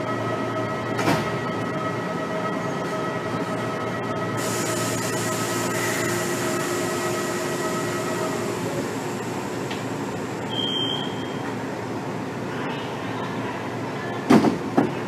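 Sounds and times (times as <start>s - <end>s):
train equipment hum: 0.0s - 12.5s
steady tones: 3.6s - 10.6s.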